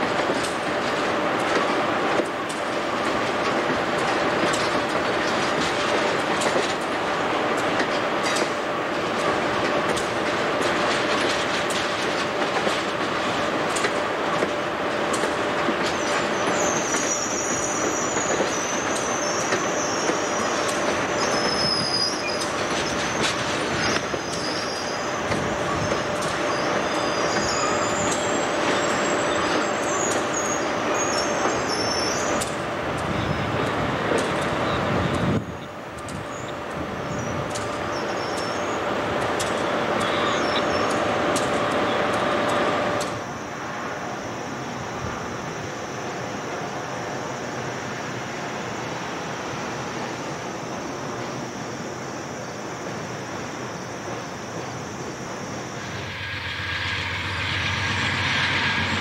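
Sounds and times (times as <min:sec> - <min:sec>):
train wheels rumbling on rails: 0:00.0 - 0:59.0
high squeal of wheels and brakes: 0:15.8 - 0:33.5, 0:34.2 - 0:45.7, 0:53.4 - 0:59.0.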